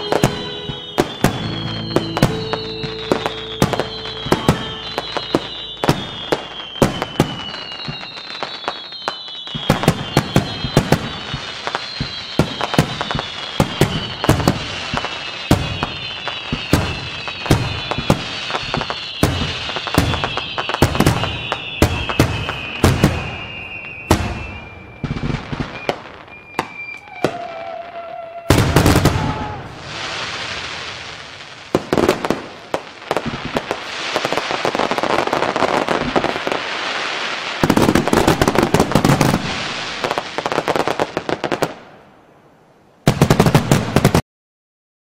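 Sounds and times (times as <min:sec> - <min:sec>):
falling whistle: 0:00.0 - 0:30.3
fireworks bangs: 0:00.0 - 0:42.1, 0:43.0 - 0:44.2
fireworks crackling: 0:00.0 - 0:42.3, 0:43.0 - 0:44.2.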